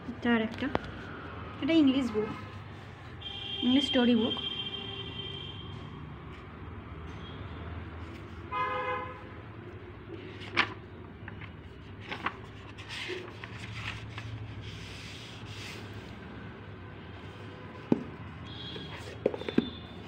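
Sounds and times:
book handling rustle: 0:10.0 - 0:16.2.

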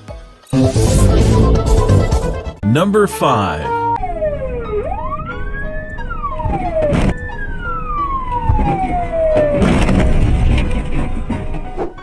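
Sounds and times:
siren wailing: 0:03.7 - 0:09.9.

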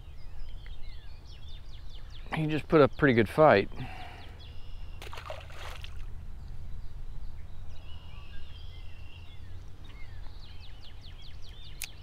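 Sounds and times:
small birds chirping faintly: 0:00.0 - 0:12.0.

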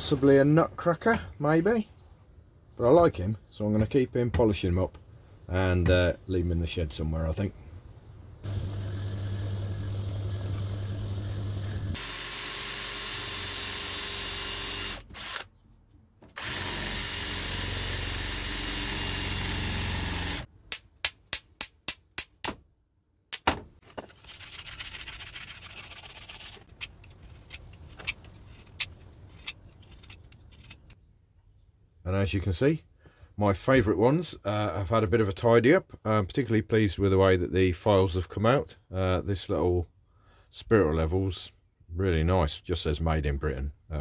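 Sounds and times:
power drill boring wood: 0:08.5 - 0:15.5, 0:16.4 - 0:20.5
sharp metallic taps: 0:20.7 - 0:22.6.

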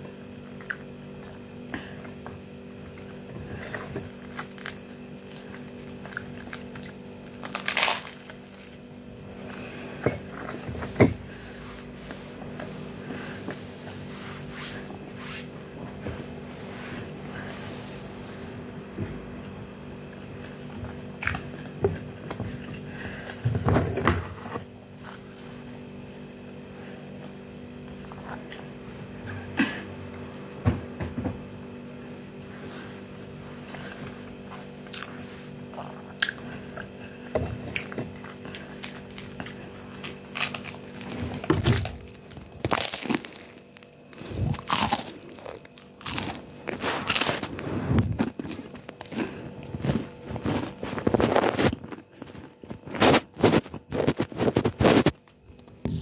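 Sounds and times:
chewing crunchy toasted bread: 0:00.1 - 0:10.8, 0:33.6 - 0:56.0.

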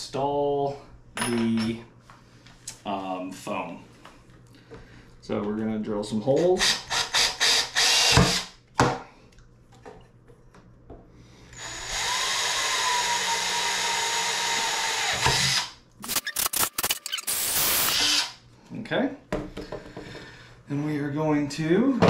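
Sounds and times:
cordless drill whining: 0:06.6 - 0:08.4, 0:11.5 - 0:18.4.

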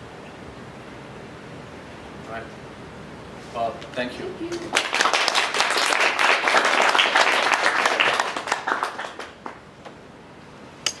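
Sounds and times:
audience applauding: 0:04.6 - 0:09.6.

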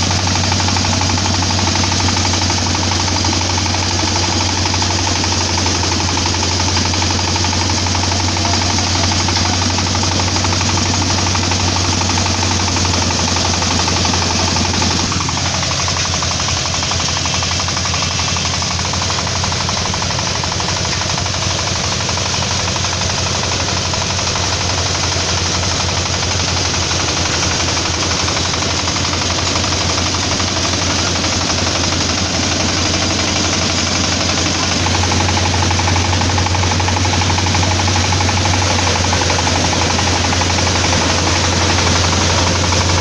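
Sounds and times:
engine knocking rapidly: 0:00.0 - 0:43.0
falling whine: 0:26.0 - 0:43.0.

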